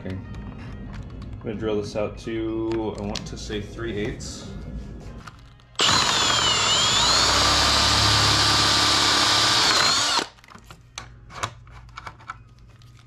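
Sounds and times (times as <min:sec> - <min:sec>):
power drill boring through plastic: 0:05.8 - 0:10.4.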